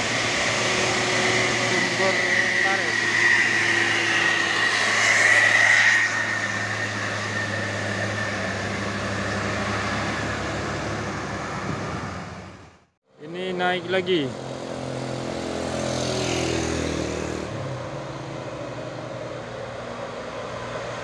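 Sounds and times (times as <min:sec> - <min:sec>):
high steady whine: 0:00.0 - 0:12.7
bus engine passing by: 0:00.0 - 0:12.9, 0:13.5 - 0:21.0.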